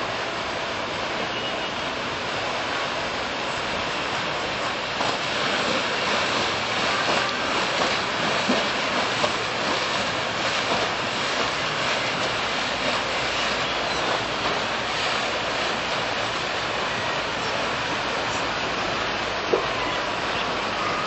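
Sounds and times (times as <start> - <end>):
river water rushing: 0.0 - 21.0.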